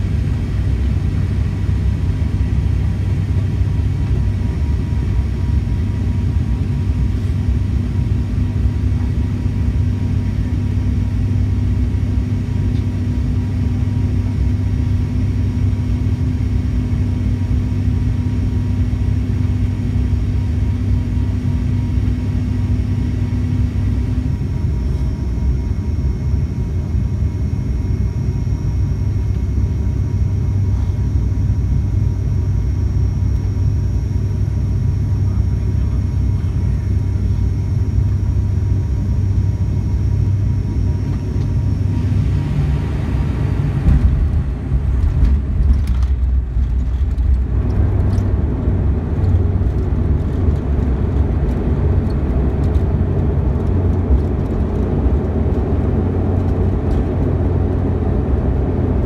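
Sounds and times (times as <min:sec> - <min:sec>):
turboprop engine hum: 0:00.0 - 0:59.0.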